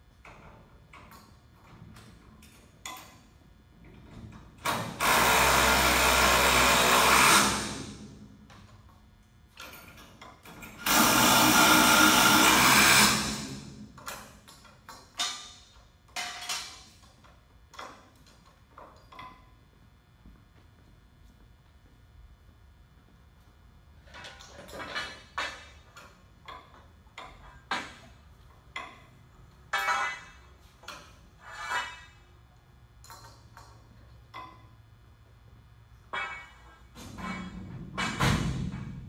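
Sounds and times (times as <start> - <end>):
hand work clicks and knocks: 0.2 - 4.8, 14.0 - 19.7, 24.1 - 32.0, 32.6 - 34.8
handheld power tool running: 4.8 - 7.9, 10.8 - 13.7.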